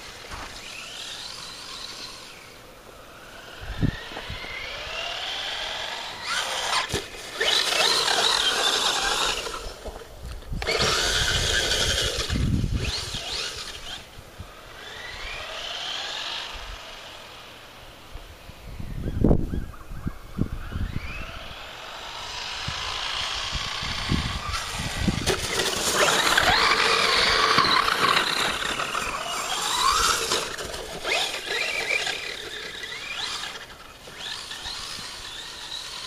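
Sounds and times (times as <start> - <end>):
electric motor whining: 0.0 - 17.6, 20.5 - 36.0.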